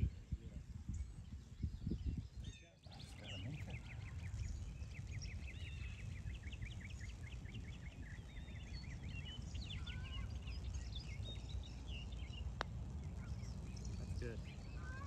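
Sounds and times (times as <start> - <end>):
songbirds chirping: 0.0 - 15.0
low outdoor rumble: 2.9 - 15.0.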